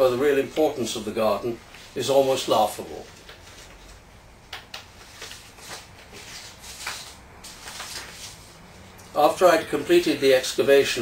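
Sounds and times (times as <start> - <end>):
paper sheets rustling: 1.7 - 4.0, 4.8 - 8.8.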